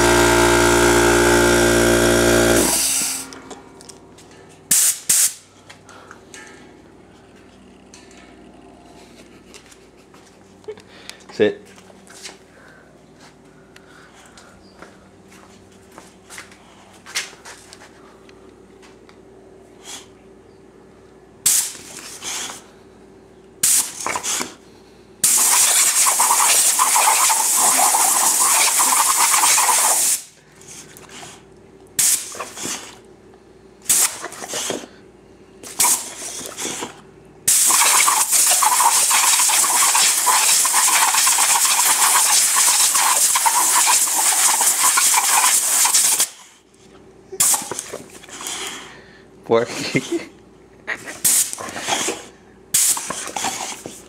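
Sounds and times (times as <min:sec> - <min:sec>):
compressed air blasts from air gun: 0:04.7 - 0:05.4, 0:21.4 - 0:21.9, 0:23.6 - 0:24.4, 0:25.2 - 0:30.3, 0:32.0 - 0:32.7, 0:33.8 - 0:34.6, 0:37.5 - 0:46.4, 0:47.4 - 0:47.7, 0:51.2 - 0:51.6, 0:52.7 - 0:53.2.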